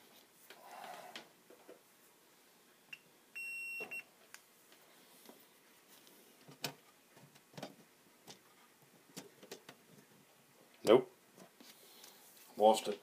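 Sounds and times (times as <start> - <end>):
short electronic beep: 3.4 - 4.0.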